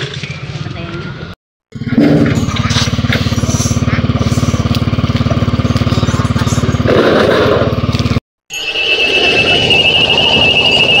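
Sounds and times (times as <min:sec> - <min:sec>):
small engine idling: 0:01.8 - 0:08.2
high-pitched electronic tone: 0:08.5 - 0:11.0.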